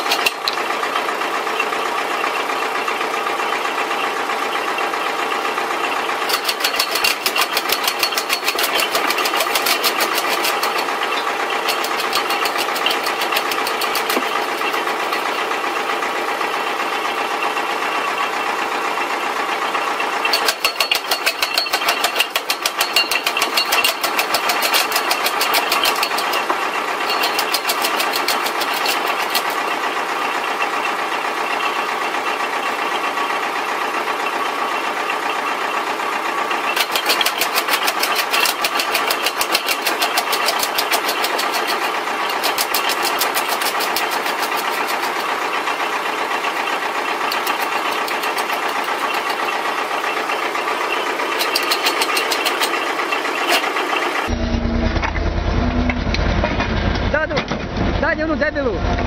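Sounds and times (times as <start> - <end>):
tractor engine running: 0.0 - 59.0
wood chipper chopping branches: 5.1 - 17.9, 19.4 - 54.4.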